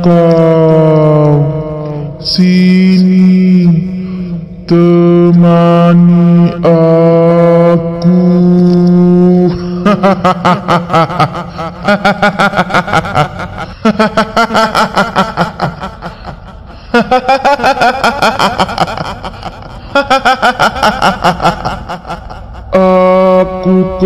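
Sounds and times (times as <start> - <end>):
voice cackling: 9.3 - 24.0.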